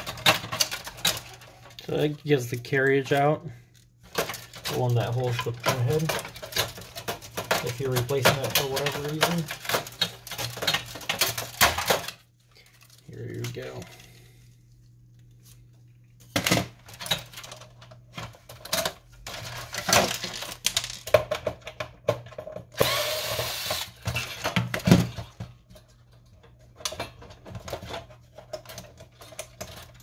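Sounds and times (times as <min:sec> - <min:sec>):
plastic and metal parts clattering: 0:00.0 - 0:14.5, 0:15.4 - 0:30.0
electric screwdriver running: 0:22.8 - 0:24.0.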